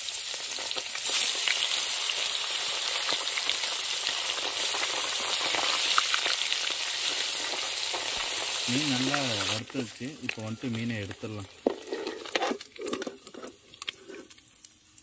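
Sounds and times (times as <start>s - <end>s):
fish frying in hot oil: 0.0s - 15.0s.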